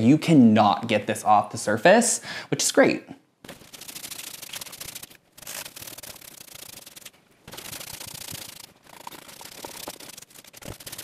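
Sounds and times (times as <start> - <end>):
brush scratching on wood: 3.5 - 11.0.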